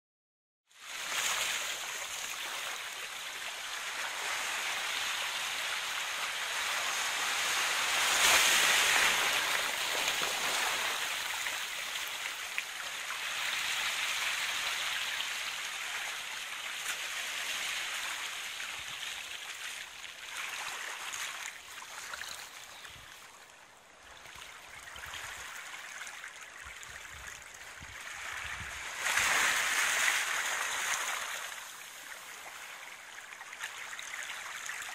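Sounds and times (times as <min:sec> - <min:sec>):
small waves washing onto pebbles: 0:00.8 - 0:23.0, 0:27.1 - 0:34.9.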